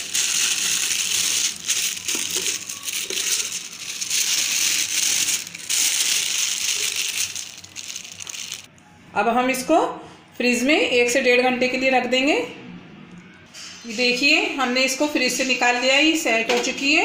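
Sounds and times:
paper crinkling and rustling: 0:00.0 - 0:08.7.

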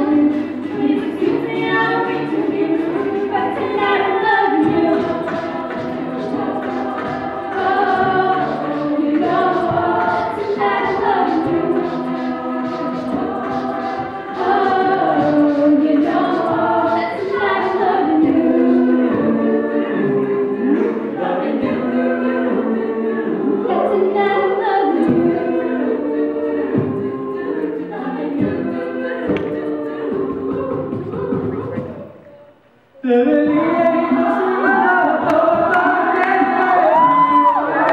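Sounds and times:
beatboxing: 0:00.0 - 0:21.9, 0:27.8 - 0:32.4
a cappella group singing: 0:00.0 - 0:37.9.

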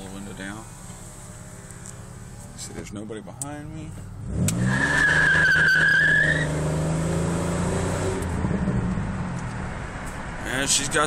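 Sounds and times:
car engine revving: 0:00.0 - 0:03.2, 0:03.8 - 0:11.0
tyres squealing: 0:04.5 - 0:06.7.

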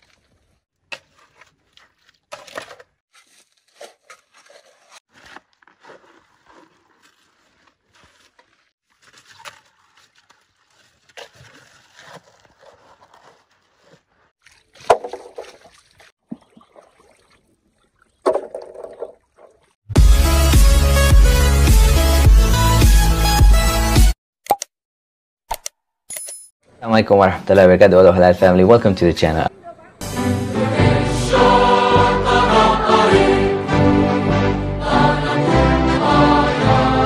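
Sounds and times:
shovel scraping through wet gravel: 0:00.0 - 0:13.2
water sloshing: 0:00.0 - 0:19.8.

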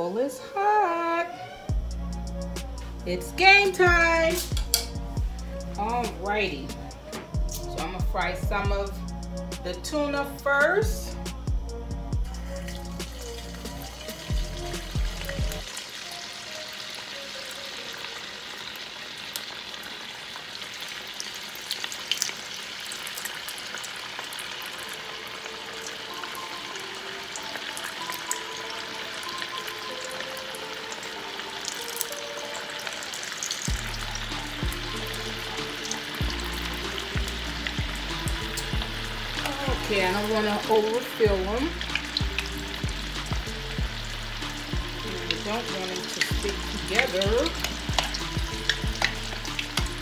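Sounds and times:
pastries sizzling in hot oil: 0:12.2 - 0:50.0.

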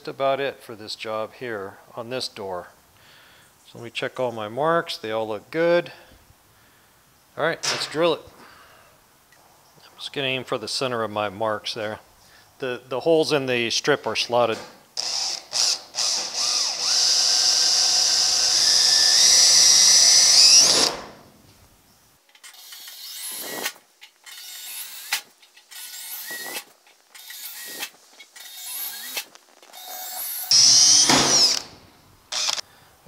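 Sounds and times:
cordless drill drilling metal: 0:15.0 - 0:21.1, 0:22.4 - 0:31.7, 0:32.3 - 0:32.6.

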